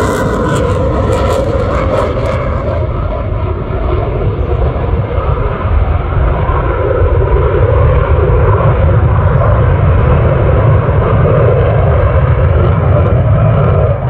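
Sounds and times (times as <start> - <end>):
aircraft engine flying past: 0.0 - 14.0.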